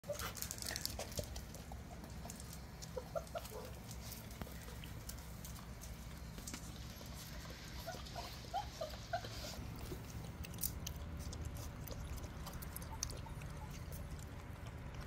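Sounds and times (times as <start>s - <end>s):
paws clicking on concrete: 0.0s - 15.0s
puppies squeaking: 2.8s - 3.8s, 7.0s - 14.8s.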